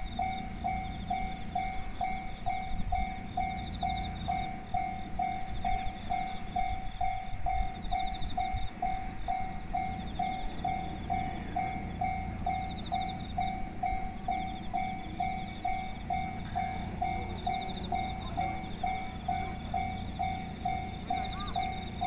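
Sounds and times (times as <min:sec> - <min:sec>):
level crossing bell ringing: 0:00.0 - 0:22.0
low steady rumble: 0:00.0 - 0:22.0
high trilling chirp: 0:17.5 - 0:22.0.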